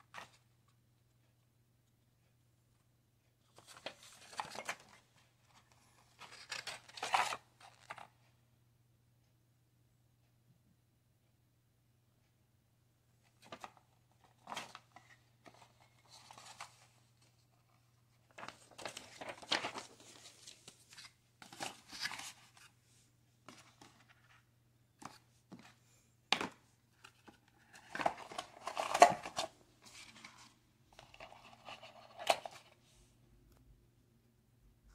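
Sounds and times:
cardboard and paper rustling: 3.5 - 8.1, 13.3 - 32.8.

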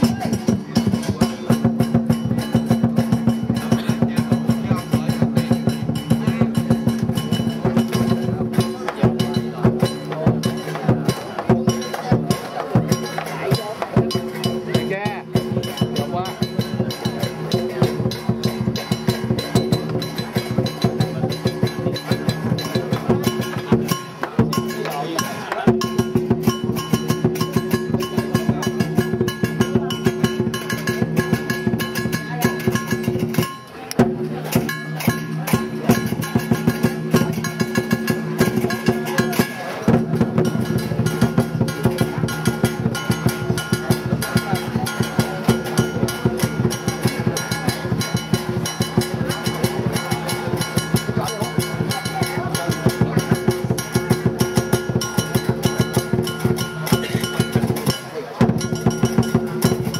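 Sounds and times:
drum beaten fast: 0.0 - 59.9
ringing metal percussion: 0.0 - 59.9.

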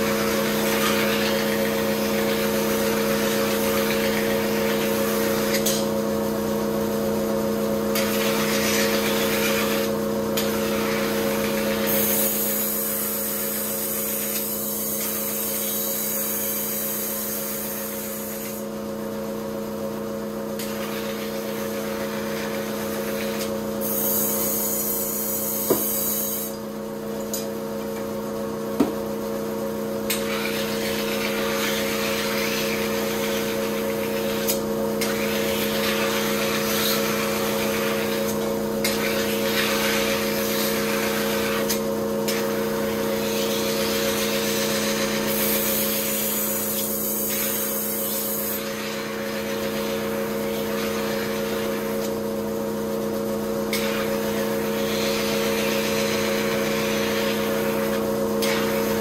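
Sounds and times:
motor hum: 16.2 - 59.0.

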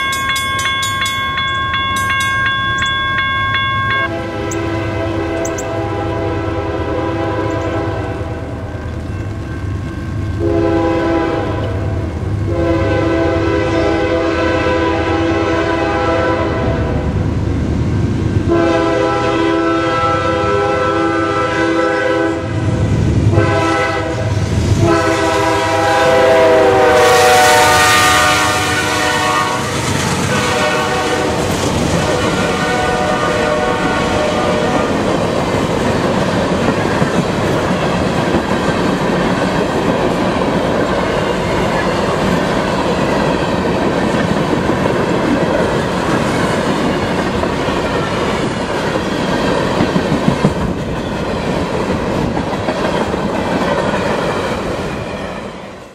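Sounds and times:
freight train rumble: 0.0 - 55.9
train horn: 3.9 - 8.6, 10.4 - 17.1, 18.4 - 35.2
train wheels clacking over rail joints: 34.9 - 54.7.

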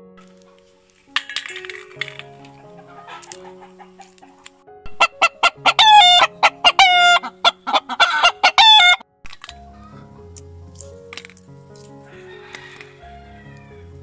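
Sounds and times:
soft background music: 0.0 - 14.0
rooster clucking and calling: 4.9 - 9.0.

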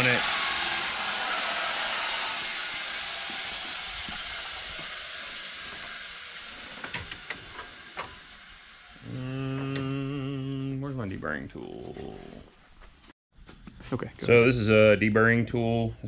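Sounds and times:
steady hiss: 0.0 - 10.8
man humming: 9.0 - 12.5.

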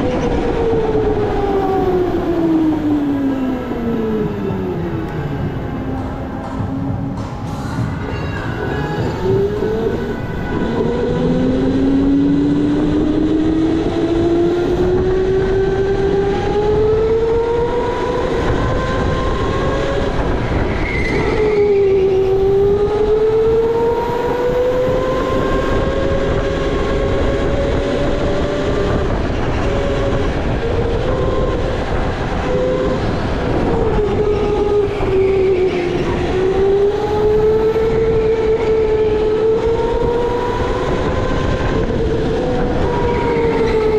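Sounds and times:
rumbling tyre and chassis noise: 0.0 - 43.9
electric go-kart motor whining: 9.0 - 43.9.

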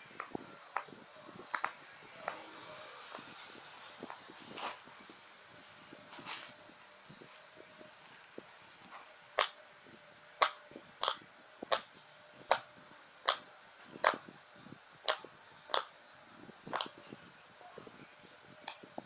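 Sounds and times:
fidget toy popping: 1.5 - 2.4, 9.4 - 9.6, 10.4 - 14.3, 15.0 - 16.0, 16.7 - 17.0.

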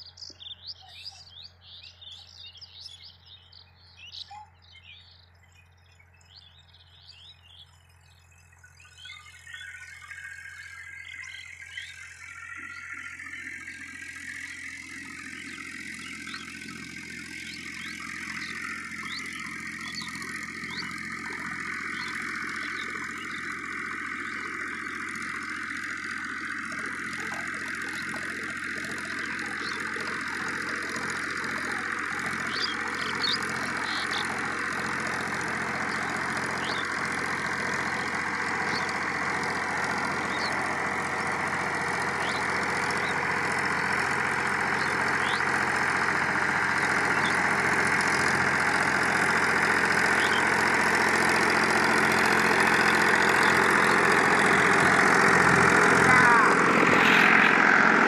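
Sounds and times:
diesel tractor engine under load: 0.0 - 58.0
rotavator churning soil: 14.0 - 58.0.

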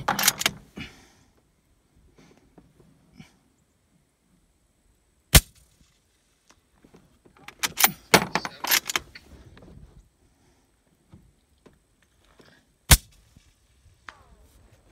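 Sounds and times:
metallic clicks of rifle action: 0.0 - 0.6, 7.4 - 9.2.

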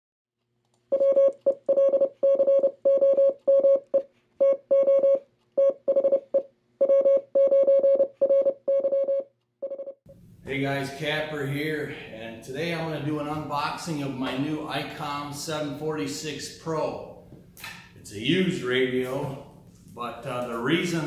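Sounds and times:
morse code electronic beeps: 0.9 - 10.0.

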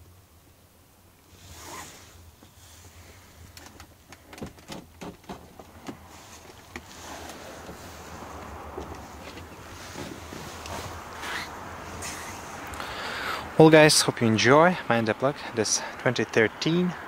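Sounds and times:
car door opening: 3.6 - 12.4.

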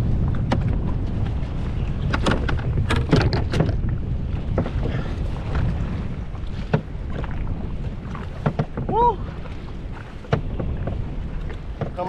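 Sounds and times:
wind buffeting microphone: 0.0 - 12.0
sharp knocks or splashes: 2.0 - 3.9, 6.4 - 12.0.

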